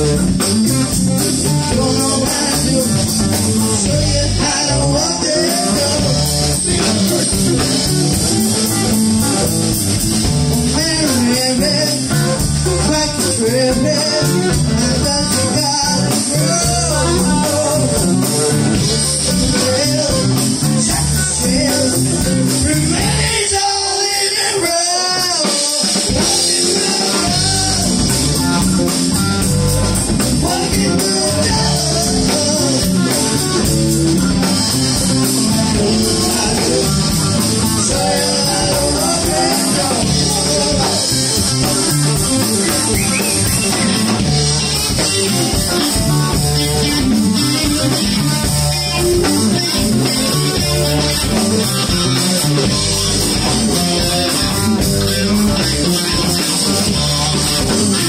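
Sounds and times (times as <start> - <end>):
bass guitar: 0.0 - 58.0
drum kit: 0.0 - 58.0
electric guitars: 0.0 - 58.0.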